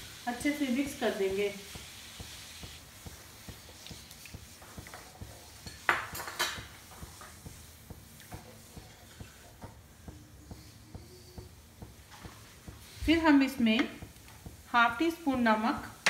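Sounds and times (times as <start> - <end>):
spoon scraping a frying pan: 4.6 - 7.4.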